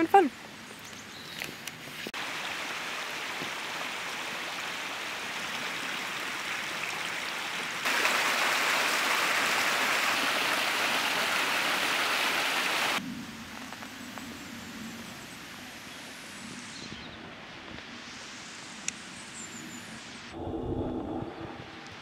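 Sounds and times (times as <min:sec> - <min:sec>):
stream water rushing: 0:02.1 - 0:13.0.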